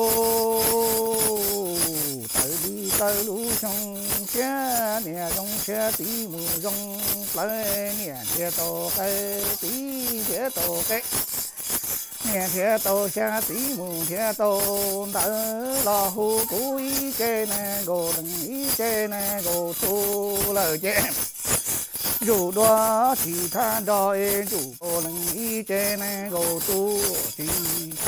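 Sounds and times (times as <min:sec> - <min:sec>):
man chanting: 0:00.0 - 0:11.3, 0:12.1 - 0:21.2, 0:22.2 - 0:28.0
metal ring rattle jingling: 0:00.0 - 0:28.0.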